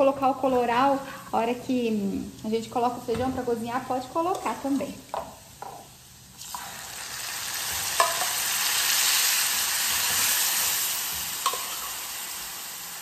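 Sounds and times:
food sizzling in hot lard: 0.0s - 13.0s
metal spoon clinking on pan: 8.0s - 8.4s, 11.4s - 11.9s.

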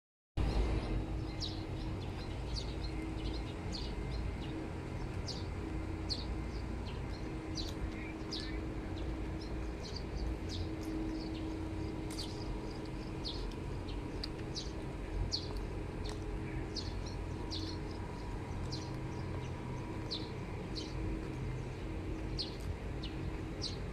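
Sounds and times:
faint steady hum: 0.4s - 23.9s
low outdoor rumble: 0.4s - 23.9s
small birds chirping: 0.4s - 23.9s.

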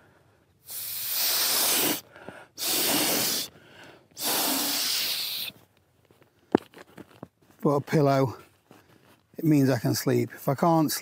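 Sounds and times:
person blowing into pillow valve: 0.6s - 3.5s, 4.2s - 5.6s.

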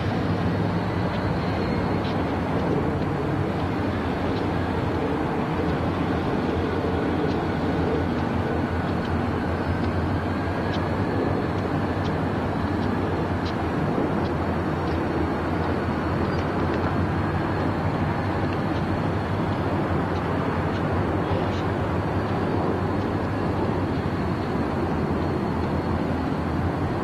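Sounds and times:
diesel locomotives rumbling: 0.0s - 27.0s
faint light ticks: 11.5s - 13.6s, 18.4s - 22.4s.

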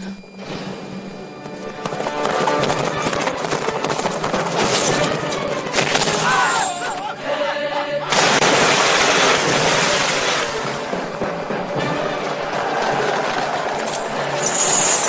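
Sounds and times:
battle crashing and rumbling: 1.6s - 7.1s, 8.0s - 15.0s
wavering high cry: 6.2s - 8.1s
sudden loud crash: 8.1s - 13.8s.

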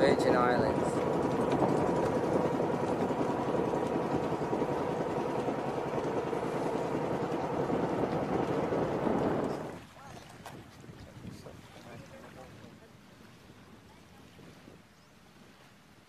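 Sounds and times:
boat engine drone: 0.0s - 9.8s.

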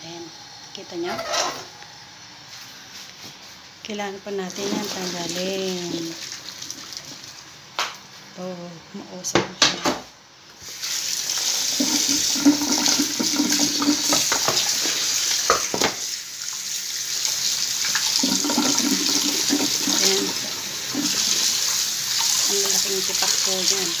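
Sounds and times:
tap water splashing into pot: 11.7s - 16.0s, 17.2s - 23.8s.

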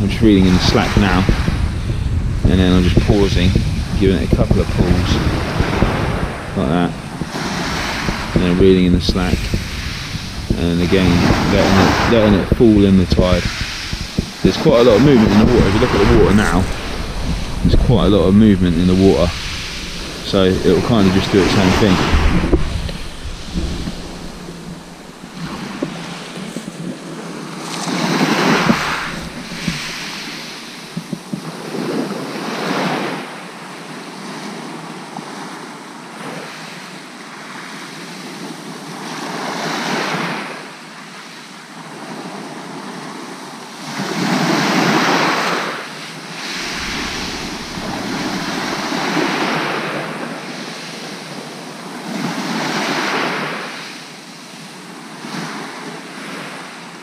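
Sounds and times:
wind buffeting microphone: 0.0s - 33.2s, 46.2s - 50.3s
waves washing over shingle: 0.0s - 57.0s.

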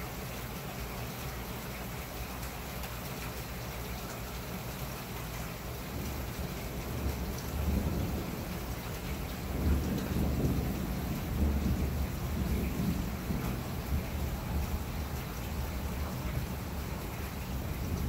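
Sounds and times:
steady rain falling: 0.0s - 18.0s
thunder rumbling: 6.0s - 18.0s.

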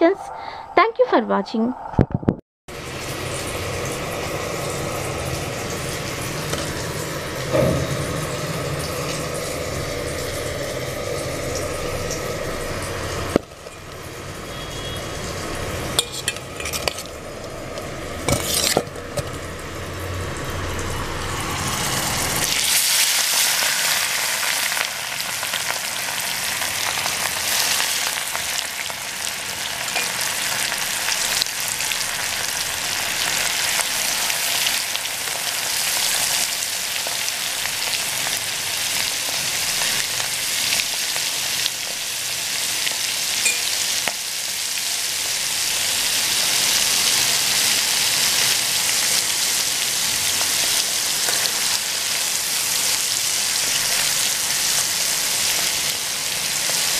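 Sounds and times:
oil sizzling in frying pan: 2.7s - 56.9s
spoon clinking against bowl: 16.0s - 17.0s, 43.4s - 43.8s.

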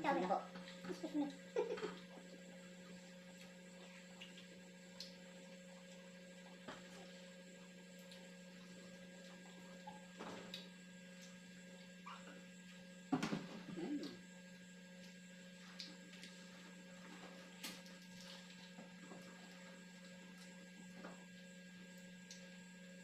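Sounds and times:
low electrical hum: 0.0s - 23.0s
faint clicks of eating: 0.6s - 2.2s, 3.3s - 5.2s, 7.9s - 8.3s, 15.0s - 16.4s, 21.9s - 22.5s.

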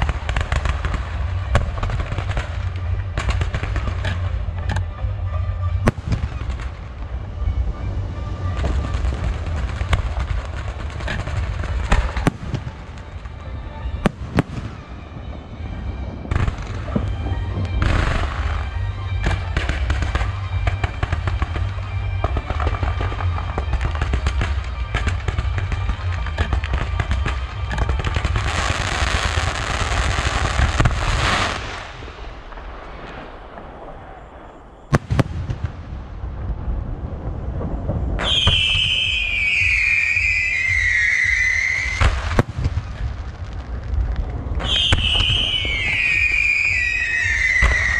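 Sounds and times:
firework bangs and cracks: 0.0s - 4.9s, 5.8s - 47.9s
low rumble: 0.0s - 39.7s, 41.9s - 47.9s
firework crackling: 0.0s - 47.9s.

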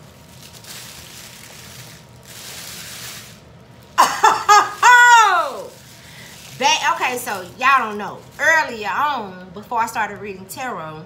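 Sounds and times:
woman squealing excitedly: 4.0s - 5.7s
soft rustling: 4.6s - 8.6s.

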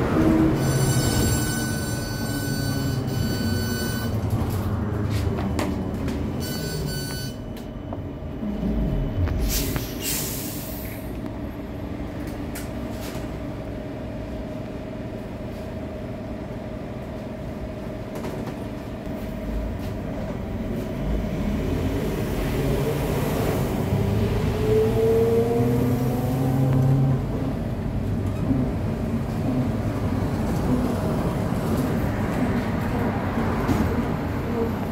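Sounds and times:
trolleybus motor whine: 0.0s - 9.9s.

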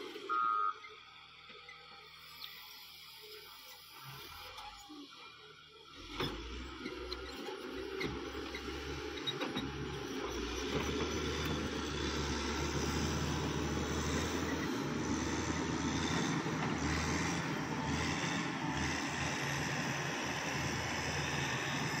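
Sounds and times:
diesel engine running: 5.9s - 22.0s.

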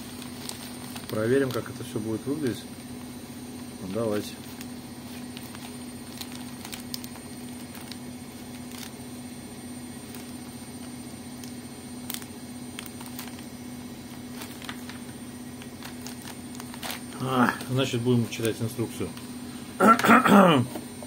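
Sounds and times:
steady low hum: 0.0s - 21.0s
bag sealer clicks: 4.5s - 9.0s.

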